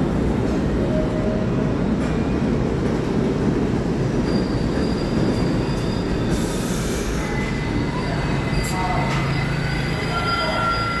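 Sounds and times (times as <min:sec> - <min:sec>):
subway train rumbling: 0:00.0 - 0:11.0
high wheel squeals: 0:04.2 - 0:11.0
lower wheel squeal: 0:04.2 - 0:11.0.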